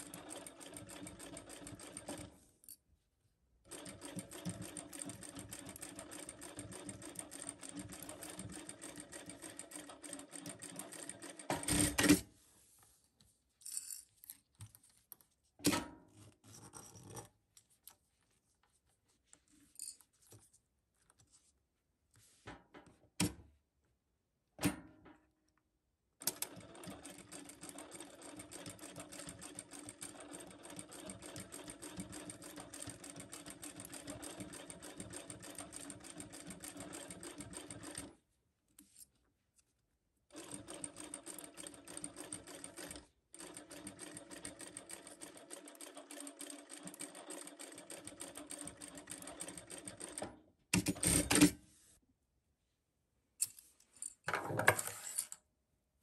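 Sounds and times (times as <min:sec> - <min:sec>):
sewing machine stitching: 0:03.7 - 0:12.2, 0:26.2 - 0:38.1, 0:40.3 - 0:51.6.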